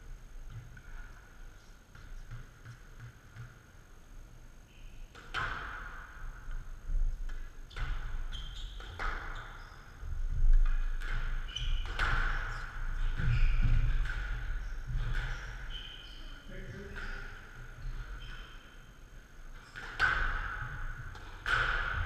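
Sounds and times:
squash ball hitting rackets and walls: 1.9 - 3.9, 4.8 - 18.7, 19.5 - 22.0
shoes squeaking on court floor: 7.3 - 18.9.

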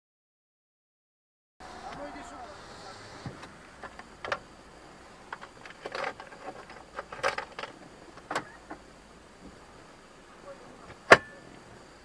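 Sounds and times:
faint car cabin noise: 1.6 - 12.0
clicks and knocks in car cabin: 5.3 - 8.8.

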